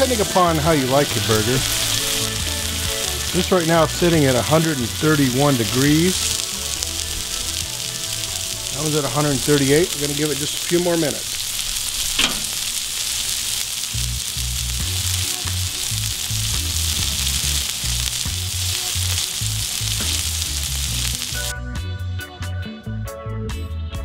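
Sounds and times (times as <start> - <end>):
background music with pulsing bass: 0.0 - 9.5, 14.0 - 24.0
burger patties sizzling on griddle: 0.0 - 21.5.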